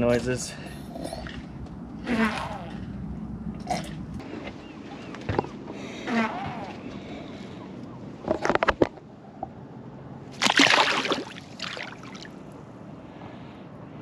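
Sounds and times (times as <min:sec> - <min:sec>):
fish slapping against boat: 0:10.4 - 0:12.1
fish splashing in water: 0:10.4 - 0:12.4.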